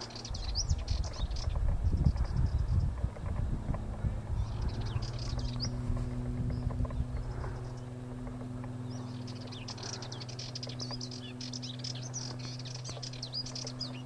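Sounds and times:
steady low hum: 0:00.0 - 0:14.0
bird warbling: 0:04.3 - 0:14.0.

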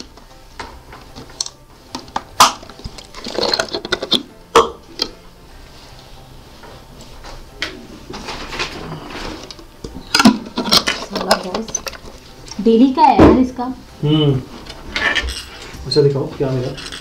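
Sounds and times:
plastic bottle crackling and clicking: 0:01.2 - 0:05.2, 0:09.4 - 0:12.6.

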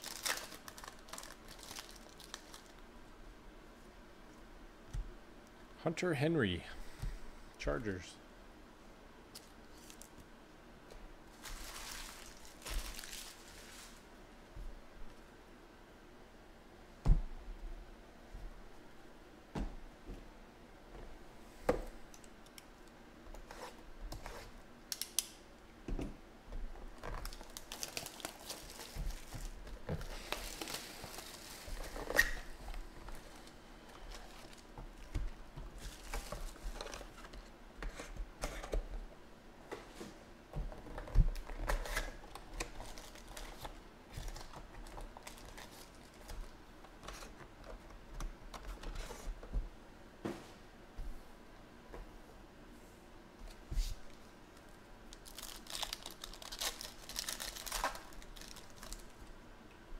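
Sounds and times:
foil packs crinkling: 0:00.0 - 0:02.8, 0:11.3 - 0:14.1, 0:26.9 - 0:32.4, 0:33.0 - 0:35.2, 0:35.8 - 0:37.2, 0:41.2 - 0:46.6, 0:55.1 - 0:59.2.

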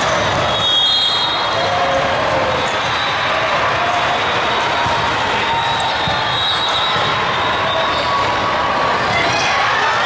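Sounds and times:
many voices in a hall: 0:00.0 - 0:10.0
volleyballs struck and bouncing: 0:03.8 - 0:06.4.

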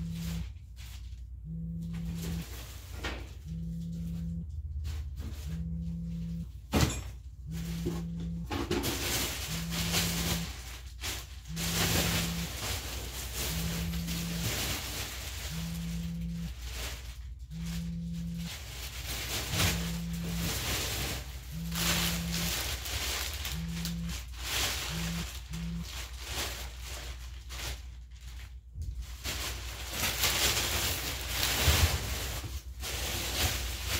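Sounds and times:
low pulsing buzz: 0:00.0 - 0:26.1
plastic bags rustling: 0:07.5 - 0:33.9.

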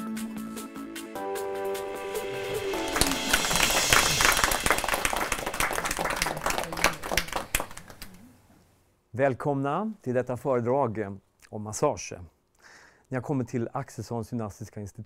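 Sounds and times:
intro music: 0:00.0 - 0:07.1
audience applauding: 0:02.2 - 0:08.2.

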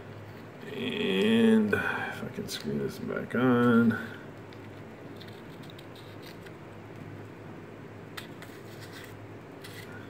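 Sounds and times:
low room hum: 0:00.0 - 0:10.0
light clicks and scrapes: 0:04.0 - 0:06.6, 0:08.2 - 0:10.0.

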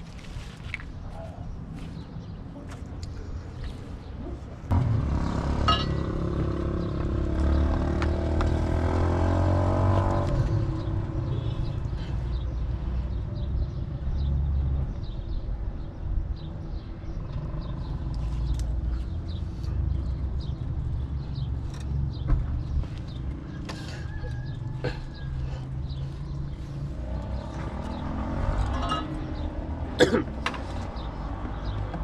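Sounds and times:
vehicle engine running: 0:25.3 - 0:29.5.

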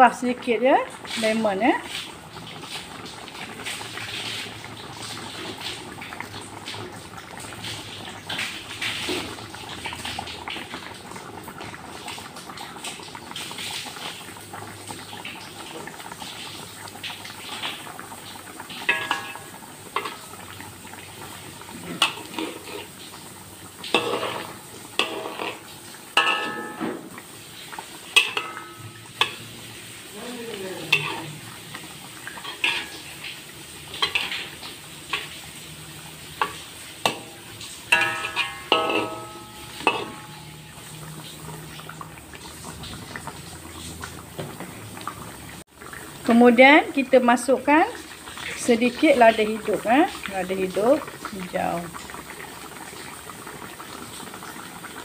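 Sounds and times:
stew simmering and bubbling: 0:00.0 - 0:55.0
utensil clinking against pot: 0:18.9 - 0:20.4, 0:23.9 - 0:27.0, 0:28.2 - 0:29.4, 0:32.4 - 0:33.0, 0:36.4 - 0:40.8.

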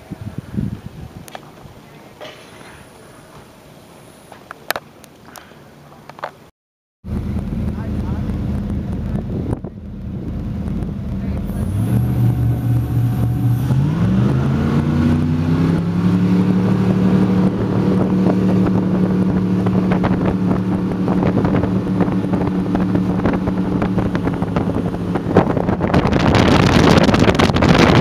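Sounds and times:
rush of wind and water: 0:00.0 - 0:01.9, 0:07.2 - 0:28.0
motorboat engine: 0:07.0 - 0:28.0.

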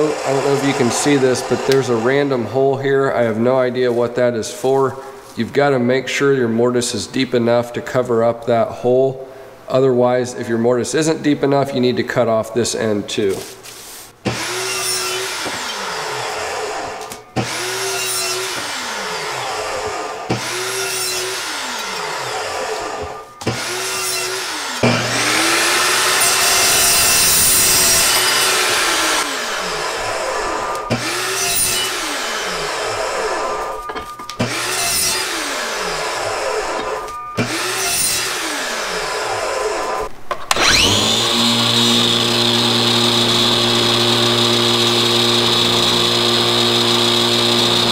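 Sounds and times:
chop saw cutting metal: 0:00.0 - 0:02.3, 0:14.2 - 0:33.4, 0:34.4 - 0:47.9
angle grinder whine: 0:00.0 - 0:02.6, 0:14.4 - 0:47.9.

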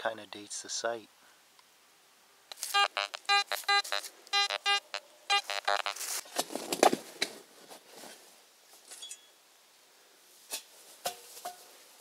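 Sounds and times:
metal detector chirps: 0:02.5 - 0:06.0.

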